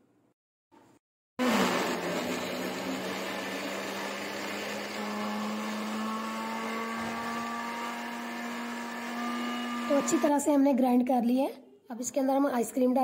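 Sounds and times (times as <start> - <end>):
electric blender running: 1.4 - 10.5.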